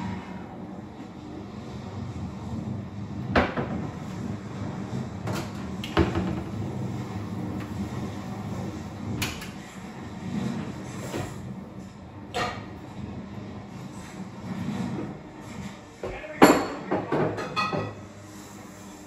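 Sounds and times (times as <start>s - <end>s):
steady low hum: 0.0s - 16.8s
dishes clattering: 16.0s - 18.0s.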